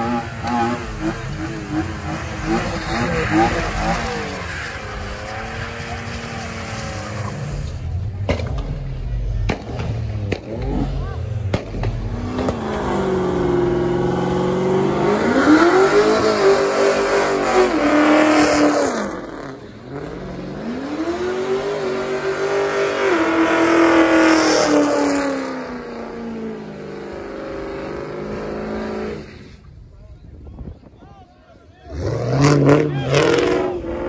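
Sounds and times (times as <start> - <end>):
tyres spinning on wet asphalt: 0.0 - 8.0
car engine revving: 0.0 - 29.8, 31.8 - 34.0.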